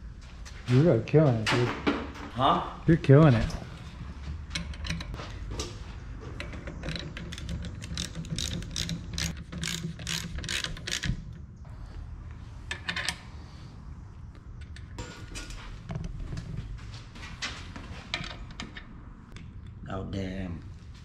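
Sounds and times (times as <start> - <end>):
socket ratchet clicking: 6.7 - 11.3.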